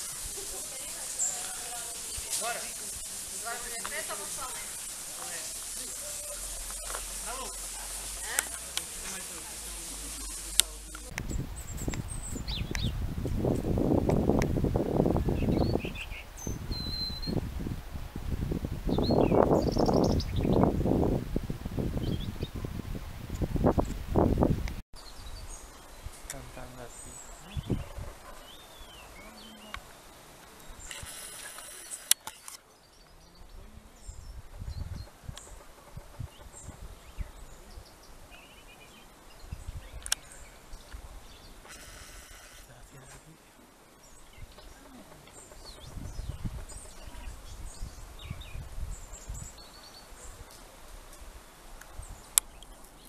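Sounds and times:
hiss: 0.0s - 11.1s, 30.8s - 32.2s, 41.6s - 42.7s
robin singing: 0.0s - 13.5s, 15.1s - 17.4s, 18.9s - 20.7s, 22.0s - 22.5s, 25.0s - 50.6s
robin singing high whistled notes: 1.1s - 13.0s, 15.4s - 17.4s
gusty low rumble: 9.9s - 24.8s
sharp click: 30.9s - 32.6s.

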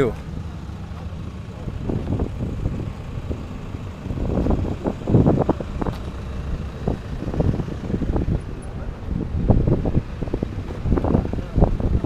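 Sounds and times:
engine idling: 0.0s - 12.0s
wind on microphone: 1.7s - 12.0s.

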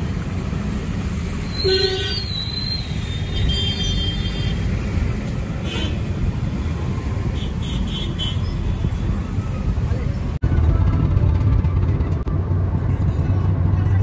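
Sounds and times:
road traffic rumble: 0.0s - 14.0s
high squeal: 1.4s - 4.6s.

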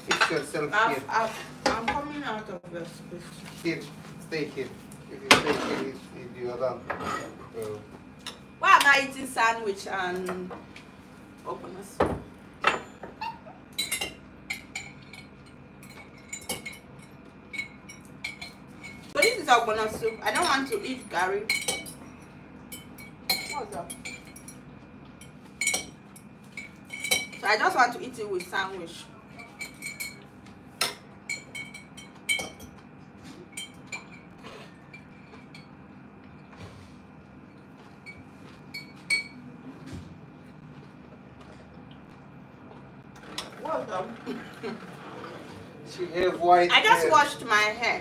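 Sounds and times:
spoon clinking against bowl: 29.4s - 32.8s, 38.0s - 39.4s.

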